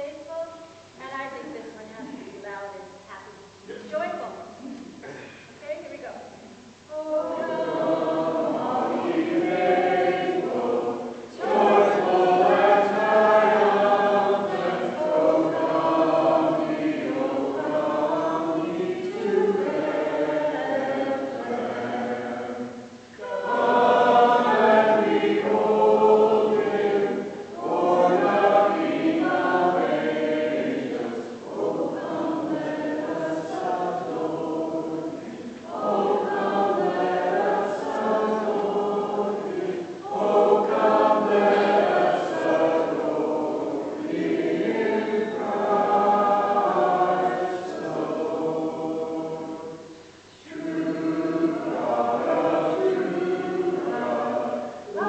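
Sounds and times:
congregation singing a hymn: 6.5s - 55.0s.

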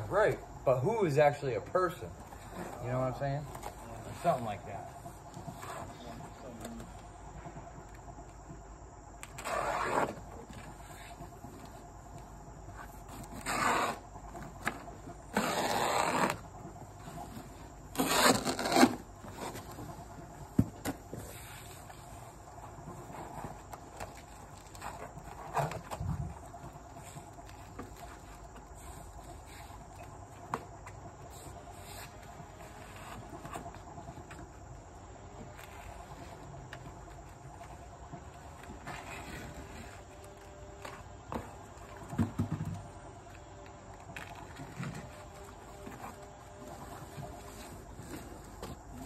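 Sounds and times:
insects chirping: 0.0s - 49.0s
foam scraping on concrete: 17.9s - 19.7s.

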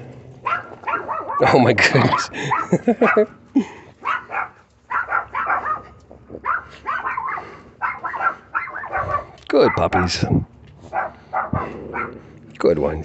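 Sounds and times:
small dogs barking and yipping: 0.4s - 3.4s, 4.0s - 10.2s, 10.8s - 12.4s.

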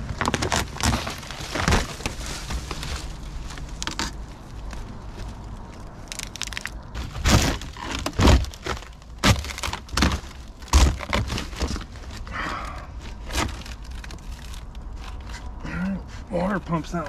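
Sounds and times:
dry leaves rustling: 0.0s - 12.3s
rotted wood cracking and thudding: 0.0s - 15.6s.

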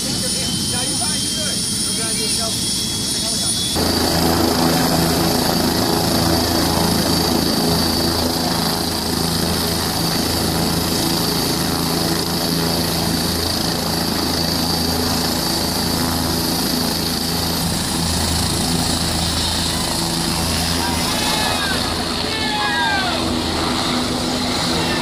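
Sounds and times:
helicopter rotor drone: 0.0s - 25.0s.

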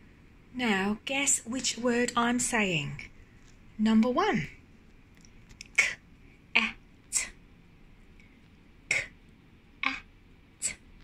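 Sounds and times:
woman sounding out phonemes: 0.6s - 3.1s, 3.8s - 4.6s, 5.6s - 7.4s, 8.9s - 9.1s, 9.8s - 10.8s.

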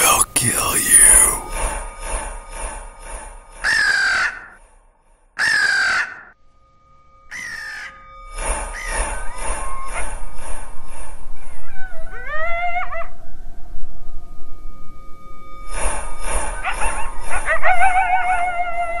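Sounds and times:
crow cawing: 3.6s - 4.6s, 5.4s - 6.4s, 7.3s - 8.1s, 8.8s - 10.1s.

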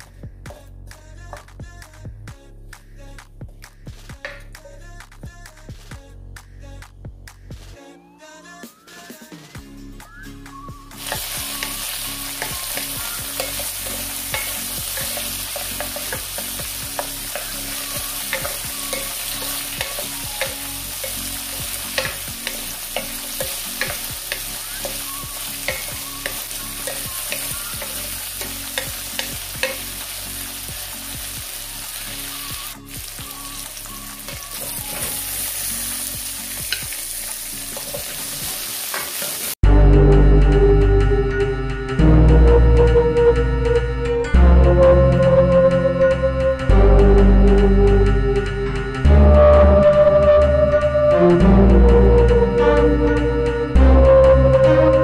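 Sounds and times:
food sizzling in a pan: 10.9s - 39.6s
utensil scraping against pan: 11.0s - 30.3s.

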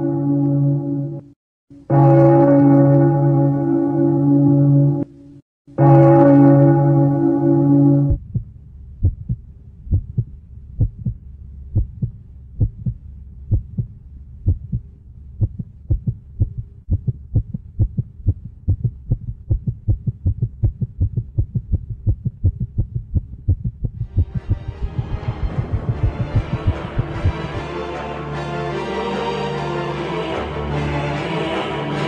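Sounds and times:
faint low hum: 7.6s - 27.6s
heartbeat thumps: 8.1s - 27.7s.

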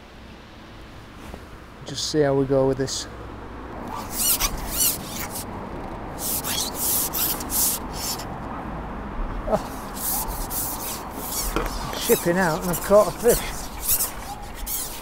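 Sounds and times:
fishing pole sliding and rubbing: 3.8s - 5.5s, 6.1s - 8.3s, 9.6s - 15.0s.

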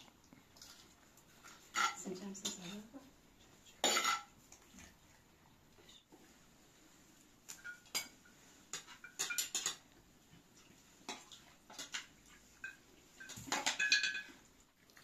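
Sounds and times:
cutlery clinking on plates: 1.4s - 2.9s, 3.8s - 4.3s, 7.5s - 10.0s, 11.1s - 14.5s.

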